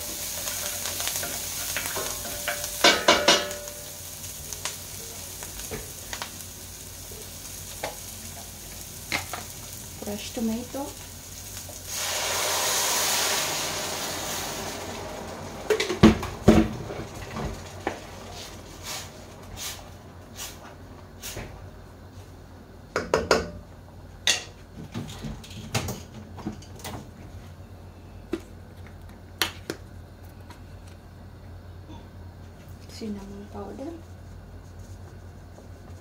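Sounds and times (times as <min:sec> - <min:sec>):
hot oil sizzling in a pan: 0:00.0 - 0:21.4
kitchenware knocking against pan: 0:02.4 - 0:03.6.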